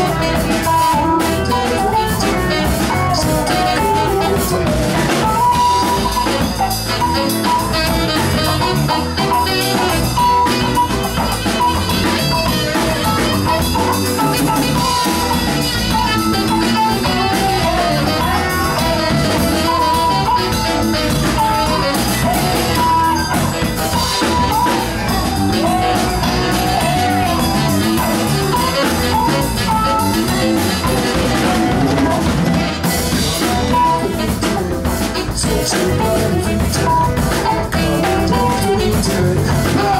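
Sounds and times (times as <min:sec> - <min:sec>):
drum kit: 0:00.0 - 0:39.9
electric guitars: 0:00.0 - 0:39.9
keyboard: 0:00.0 - 0:39.9
saxophone: 0:00.0 - 0:39.9.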